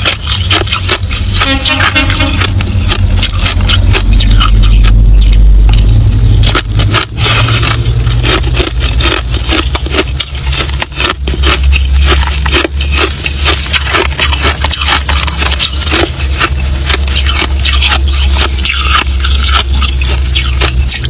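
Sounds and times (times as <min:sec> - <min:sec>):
crushed ice crunching: 0:00.0 - 0:05.4, 0:06.4 - 0:21.0
low rumble: 0:00.0 - 0:21.0.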